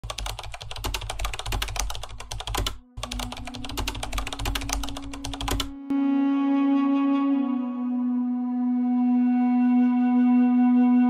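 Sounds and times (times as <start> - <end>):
keyboard typing: 0.0 - 5.8.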